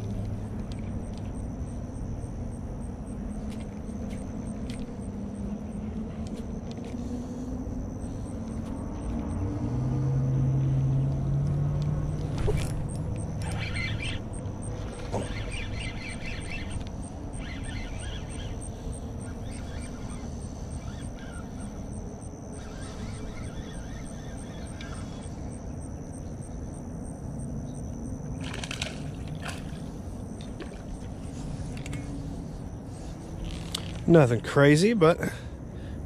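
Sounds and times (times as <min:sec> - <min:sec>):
fishing reel cranking: 0:12.6 - 0:25.4.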